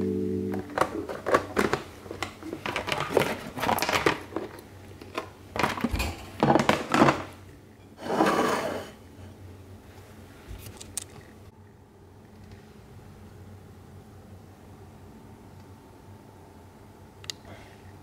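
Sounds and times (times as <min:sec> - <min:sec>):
plastic bag crinkling and rustling: 0:00.7 - 0:07.4
plate sliding on countertop: 0:08.0 - 0:09.0.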